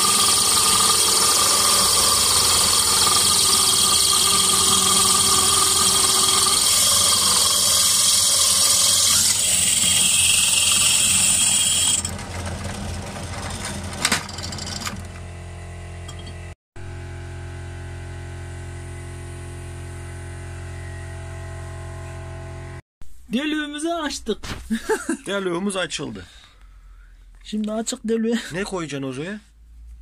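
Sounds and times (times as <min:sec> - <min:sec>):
drill bit grinding through glass: 0:00.0 - 0:14.9
drill press motor hum: 0:00.0 - 0:15.3.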